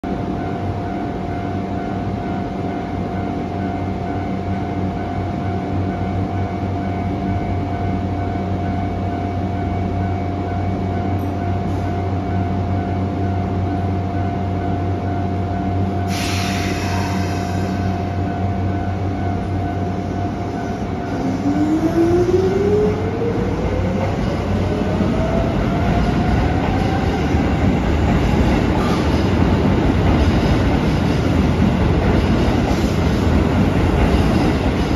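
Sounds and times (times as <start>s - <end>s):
electric train hum: 0.0s - 34.9s
train wheels rumbling: 15.7s - 34.9s.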